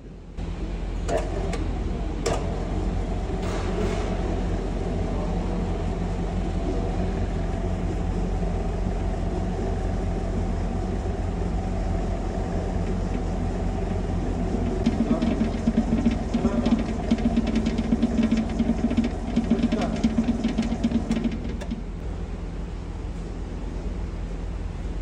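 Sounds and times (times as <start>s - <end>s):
machine hum: 0.0s - 25.0s
clattering clicks and rattles: 14.6s - 21.8s.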